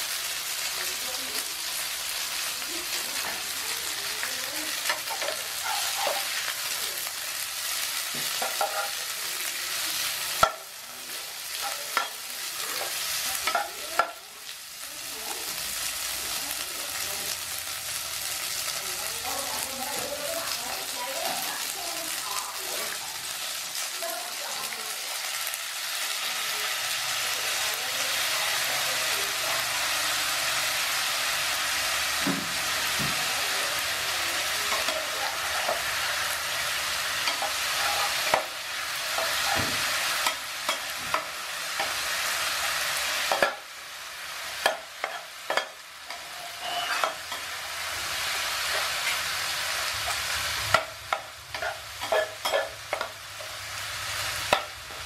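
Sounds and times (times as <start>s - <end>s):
noodles sizzling in frying pan: 0.0s - 55.0s
spatula scraping and tapping pan: 8.1s - 9.0s, 43.3s - 43.6s, 44.6s - 47.6s, 50.0s - 53.5s.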